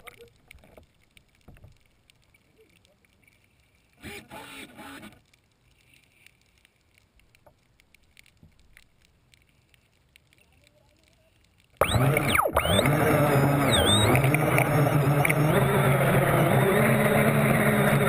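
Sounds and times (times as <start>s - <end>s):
faint ticks: 0.0s - 4.0s, 5.0s - 12.7s
toy boat motor whining: 4.0s - 5.2s, 11.8s - 18.0s.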